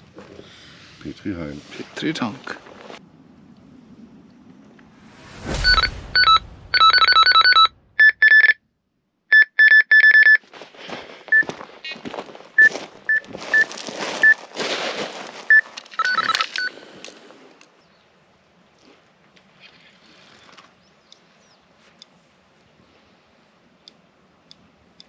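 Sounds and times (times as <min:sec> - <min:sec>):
electronic alarm beeps: 0:05.4 - 0:08.6, 0:09.3 - 0:10.4, 0:15.5 - 0:16.7.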